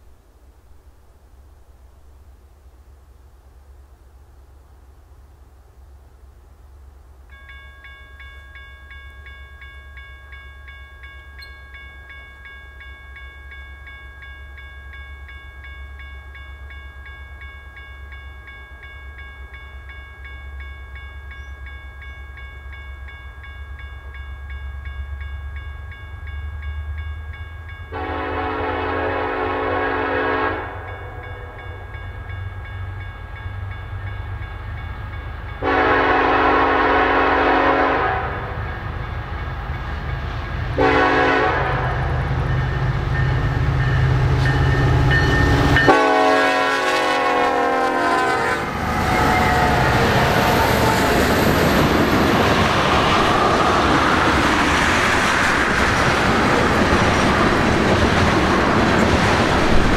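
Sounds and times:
bell ringing: 7.3s - 28.0s, 42.4s - 46.0s
train air horn blasts: 27.9s - 31.8s, 35.6s - 38.6s, 40.8s - 42.1s, 45.8s - 51.3s.

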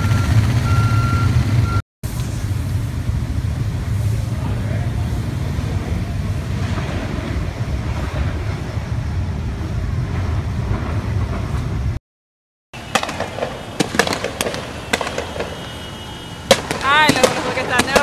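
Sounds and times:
street noise rumble: 0.0s - 12.0s, 12.8s - 18.0s
distant pops and bangs: 12.8s - 15.9s, 16.5s - 18.0s.

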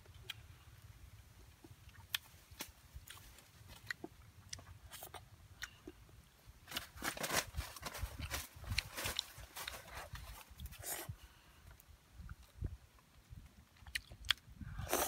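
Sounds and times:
chewing: 13.8s - 15.0s.

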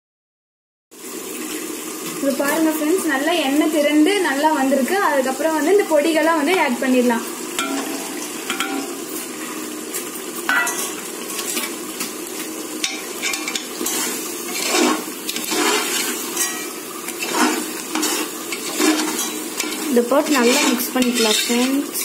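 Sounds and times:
food frying in oil: 0.9s - 22.0s
metal ladle scraping pot: 7.6s - 9.1s, 10.5s - 11.8s, 12.8s - 22.0s.

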